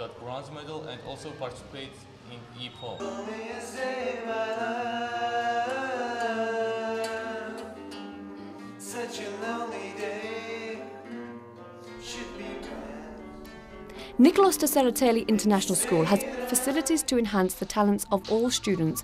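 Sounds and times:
person singing: 3.0 - 8.0, 8.8 - 11.1, 11.9 - 14.4, 15.2 - 19.0
classical guitars playing: 3.0 - 19.0.

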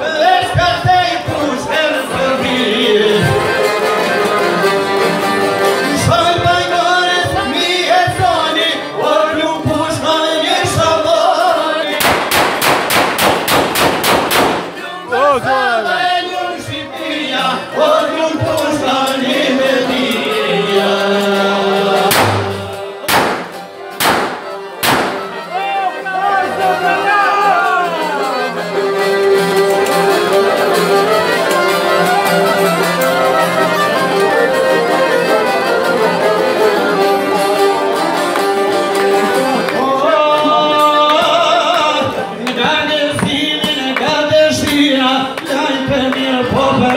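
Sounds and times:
man singing into a microphone: 0.0 - 4.6, 5.6 - 12.0, 14.8 - 23.1, 39.4 - 46.9
long-necked lute: 0.0 - 12.0, 25.2 - 42.9
violin: 0.0 - 12.0, 14.7 - 46.9
accordion: 0.0 - 46.9.

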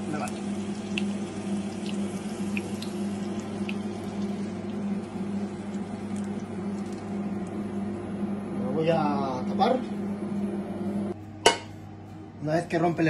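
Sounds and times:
garlic sizzling in oil: 0.0 - 7.1
steady low hum: 0.0 - 13.0.

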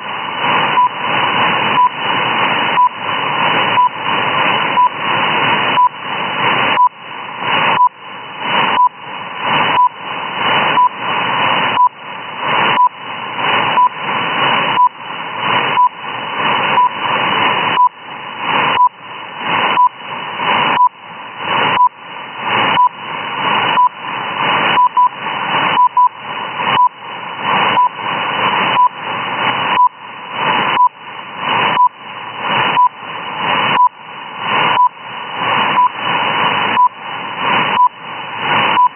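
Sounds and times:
radio static hiss: 0.0 - 38.9
short time signal beeps: 2.8 - 3.0, 3.8 - 4.0, 5.8 - 6.0, 9.7 - 10.0, 10.8 - 11.0, 13.8 - 14.0, 16.8 - 17.0, 19.7 - 20.0, 21.7 - 22.0, 23.7 - 24.0, 24.7 - 27.0, 27.7 - 28.0, 28.8 - 29.0, 29.7 - 30.0, 30.8 - 31.0, 31.8 - 32.0, 32.7 - 33.0, 33.7 - 34.0, 34.7 - 35.0, 35.8 - 36.0, 36.8 - 37.0, 37.8 - 38.0.

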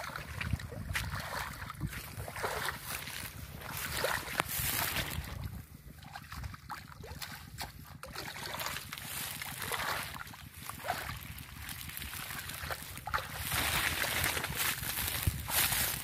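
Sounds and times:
wet grass rustling: 0.9 - 5.6, 8.4 - 16.0
hands splashing in shallow water: 7.2 - 16.0.

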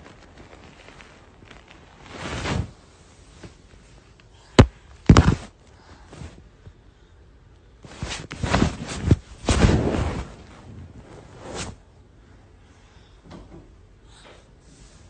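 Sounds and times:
thumps and rubbing: 4.6 - 5.5, 7.8 - 11.8.

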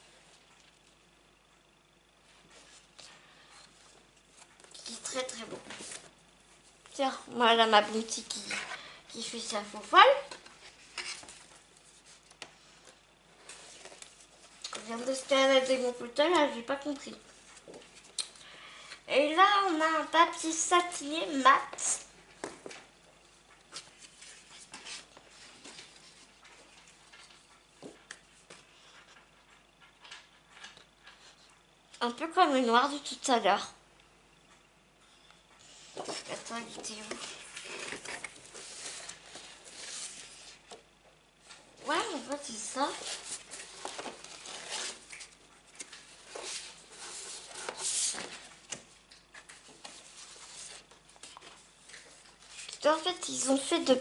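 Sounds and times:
paper rustling: 4.2 - 6.1, 35.9 - 40.8, 41.5 - 54.0.

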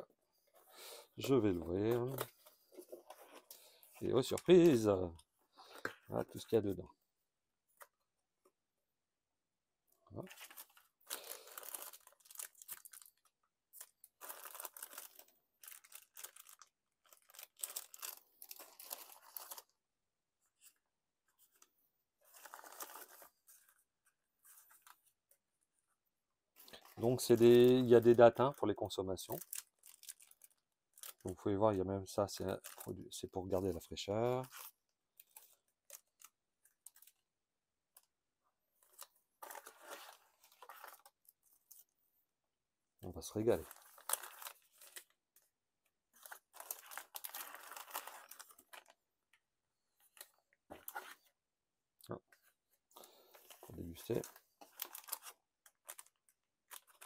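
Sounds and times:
packaging rustling and crinkling: 10.2 - 19.8, 21.4 - 25.2, 29.3 - 31.4, 38.8 - 42.0, 43.3 - 45.5, 46.1 - 49.3, 50.0 - 51.3, 53.0 - 57.0.

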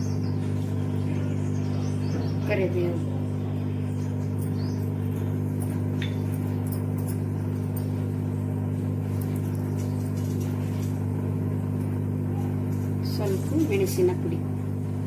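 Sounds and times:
electrical hum of cooktop: 0.0 - 15.0
spices crackling in oil: 5.8 - 14.1.

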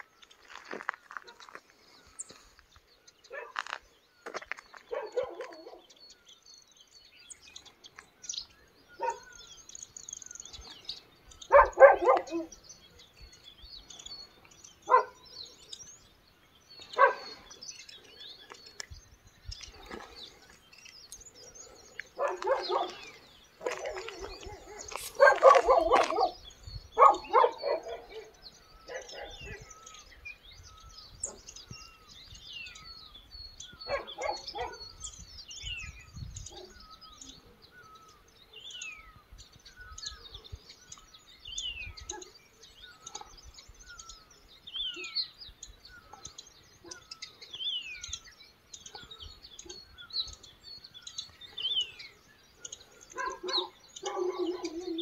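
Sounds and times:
birds chirping: 0.0 - 55.0
dog barking: 3.3 - 3.8, 4.9 - 5.9, 9.0 - 9.3, 11.5 - 12.6, 14.9 - 15.3, 17.0 - 17.4, 22.1 - 26.4, 27.0 - 29.7, 33.9 - 34.9, 36.5 - 36.8, 42.1 - 42.4, 53.1 - 55.0.

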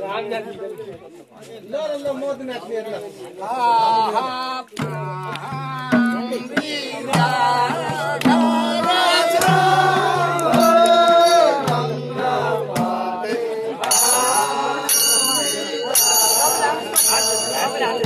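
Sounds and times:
drum beating: 4.7 - 18.0
metallic ringing: 13.9 - 18.0.

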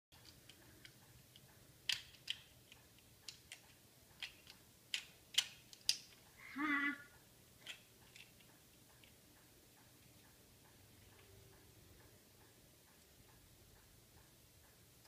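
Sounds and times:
plastic toy pieces clicking: 0.2 - 6.2, 7.6 - 9.2
child vocal sound: 6.4 - 7.1.

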